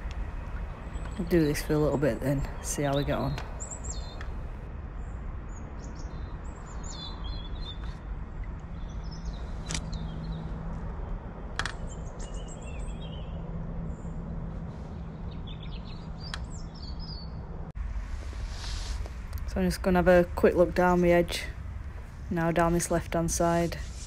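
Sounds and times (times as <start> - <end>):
low outdoor rumble: 0.0 - 7.2, 8.0 - 24.0
small birds chirping: 0.0 - 10.5, 14.9 - 17.4.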